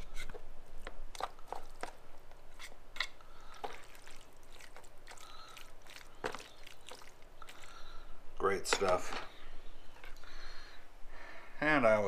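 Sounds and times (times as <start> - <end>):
wet squishes of meat: 1.1 - 7.9.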